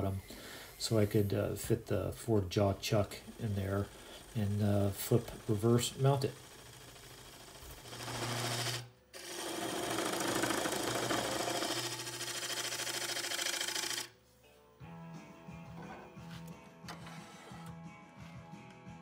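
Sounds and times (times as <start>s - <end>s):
lathe tool cutting wood: 2.6s - 14.1s
music: 14.1s - 19.0s.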